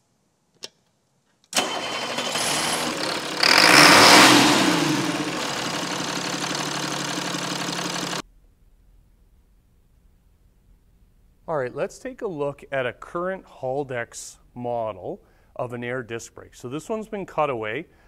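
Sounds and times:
engine starting and idling: 0:01.6 - 0:08.2.

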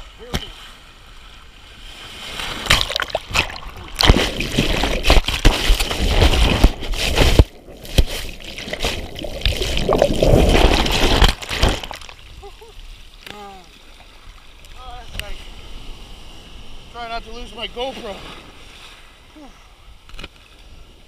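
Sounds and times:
water splashing against camera: 0:02.6 - 0:12.2
ocean surf breaking: 0:14.8 - 0:19.3.

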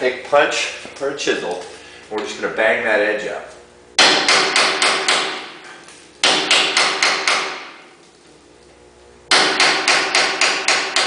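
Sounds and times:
hammer striking metal punch: 0:04.0 - 0:07.8, 0:09.3 - 0:11.0.

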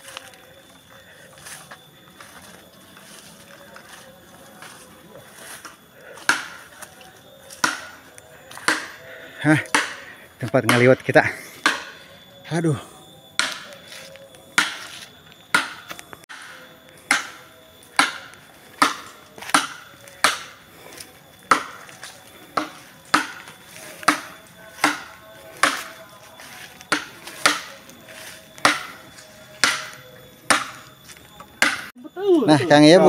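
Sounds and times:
blade chopping bamboo: 0:06.2 - 0:06.7, 0:07.6 - 0:09.0, 0:13.4 - 0:13.8, 0:14.6 - 0:14.9, 0:15.5 - 0:20.7, 0:21.5 - 0:21.9, 0:22.6 - 0:26.1, 0:26.8 - 0:27.8, 0:28.6 - 0:29.0, 0:29.6 - 0:30.9, 0:31.6 - 0:31.9.

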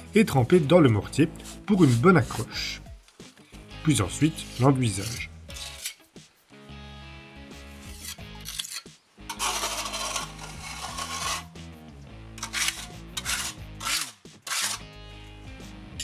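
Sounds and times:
background music: 0:00.0 - 0:16.0
metal knife scraping render: 0:04.1 - 0:06.1, 0:07.8 - 0:11.6, 0:12.3 - 0:15.0.

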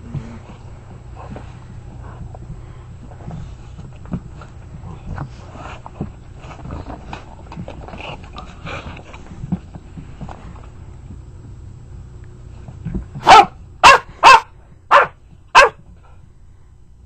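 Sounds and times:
dog barking: 0:13.2 - 0:15.8.

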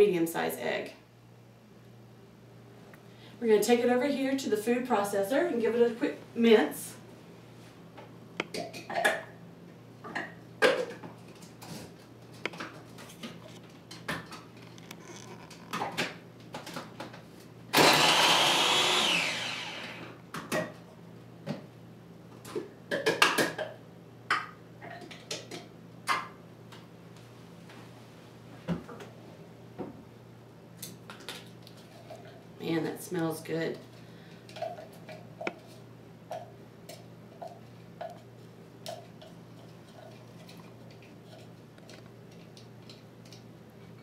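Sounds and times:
food processor motor running: 0:17.7 - 0:20.2.

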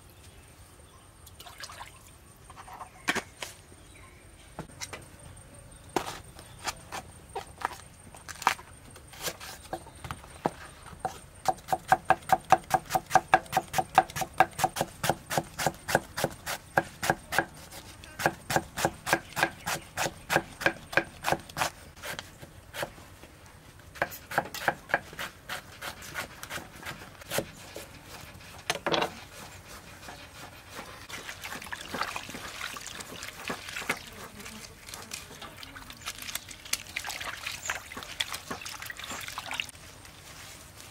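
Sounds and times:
cleaver chopping on wooden board: 0:11.4 - 0:17.5, 0:18.2 - 0:22.2
rustle of shredded flower: 0:39.1 - 0:40.9.

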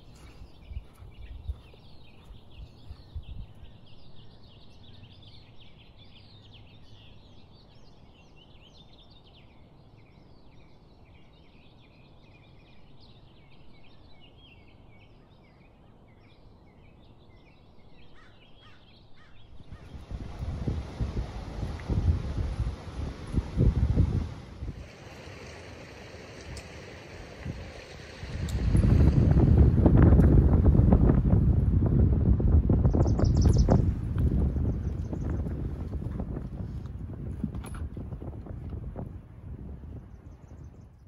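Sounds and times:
small birds chirping: 0:00.0 - 0:22.5, 0:32.7 - 0:36.7.

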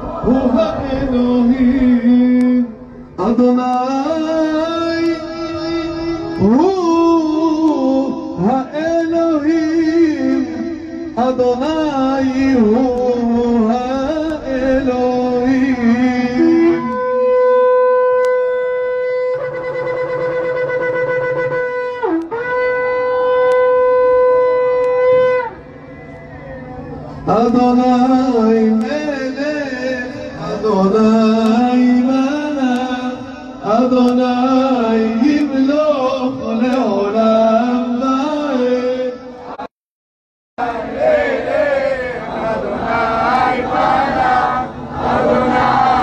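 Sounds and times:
shofar blasts: 0:16.4 - 0:27.0.

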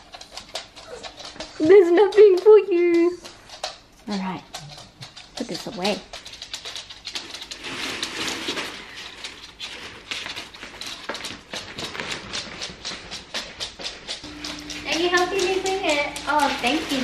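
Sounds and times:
plastic bags rustling: 0:07.2 - 0:12.3, 0:14.2 - 0:17.0.

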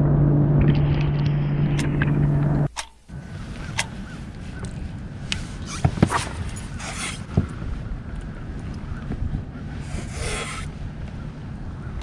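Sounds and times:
wind rumbling on microphone: 0:00.0 - 0:12.0
short hissing swishes: 0:05.4 - 0:07.4, 0:09.8 - 0:10.8.

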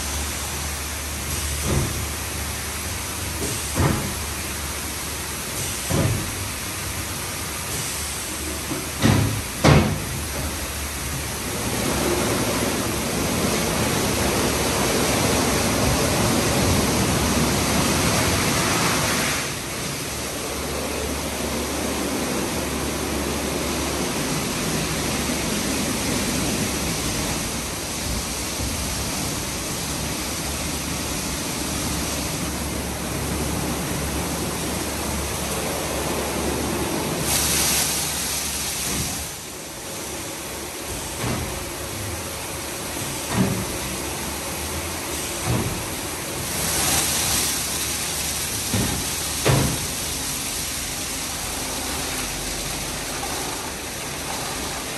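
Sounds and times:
water spraying: 0:00.0 - 0:54.9
car wash brushes working: 0:41.5 - 0:54.9.

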